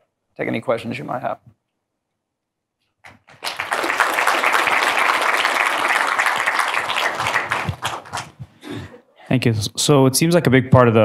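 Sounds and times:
audience applauding: 3.1 - 8.5.

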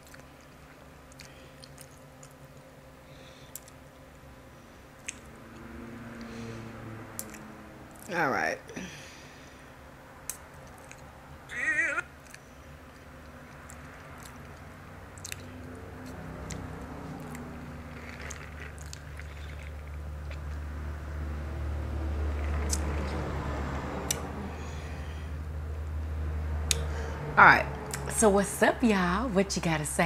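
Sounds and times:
mouth chewing sounds: 0.0 - 2.7, 5.0 - 6.3, 7.1 - 8.1, 10.2 - 11.2, 12.1 - 20.7, 22.3 - 23.2
low steady hum: 0.0 - 30.0.

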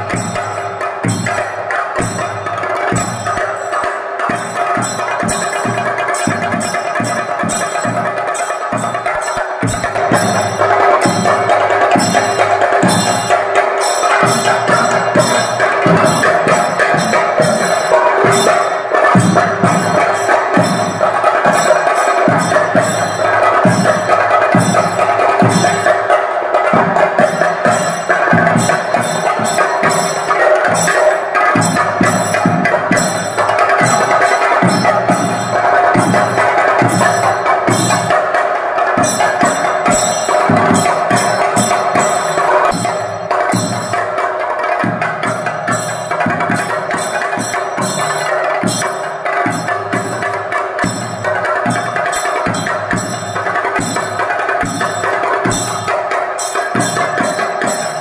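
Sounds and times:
steady ringing tone: 0.0 - 26.2, 26.8 - 44.3
drums struck with sticks: 0.0 - 58.0.

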